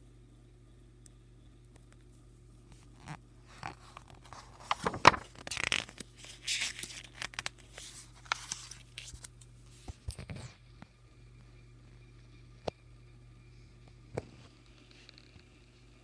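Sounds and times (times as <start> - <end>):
paper page rustling: 2.7 - 10.5.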